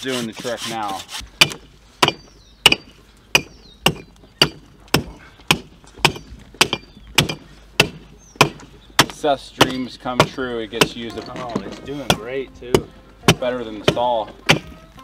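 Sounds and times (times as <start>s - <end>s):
chopping blows into backbone: 12.0s - 15.0s.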